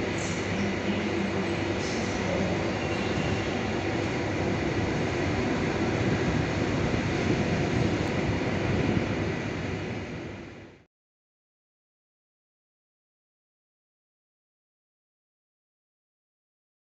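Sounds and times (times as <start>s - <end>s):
train wheels rumbling on rails: 0.0s - 10.8s.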